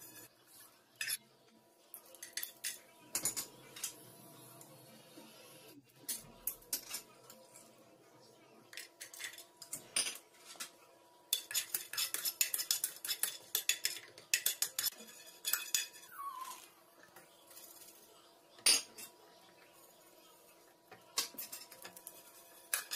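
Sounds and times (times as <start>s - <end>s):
metal utensils clinking on pots: 1.0s - 1.2s, 1.9s - 4.0s, 6.0s - 7.8s, 8.7s - 19.8s, 20.9s - 22.9s.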